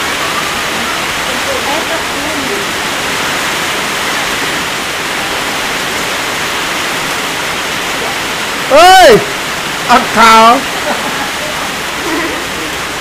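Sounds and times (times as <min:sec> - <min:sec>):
heavy rain: 0:00.0 - 0:13.0.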